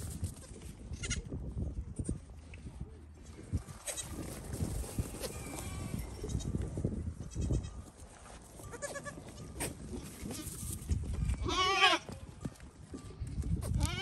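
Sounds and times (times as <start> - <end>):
hooves scuffling on dirt: 0.0 - 14.0
goat bleating: 0.3 - 1.3, 7.2 - 7.8, 8.6 - 10.7, 11.4 - 12.2, 13.8 - 14.0.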